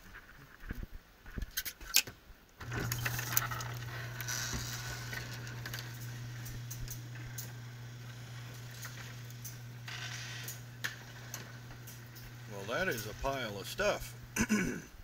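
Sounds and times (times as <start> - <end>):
garage door opener motor hum: 2.6 - 14.4.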